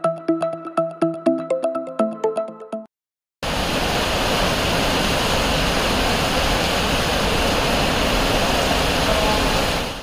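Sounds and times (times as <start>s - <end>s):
floodwater rushing: 3.4s - 10.0s
heavy rain: 3.4s - 10.0s.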